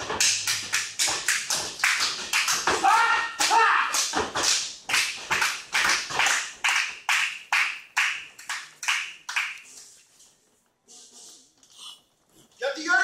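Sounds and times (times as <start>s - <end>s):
rhythmic clapping: 0.0s - 10.1s.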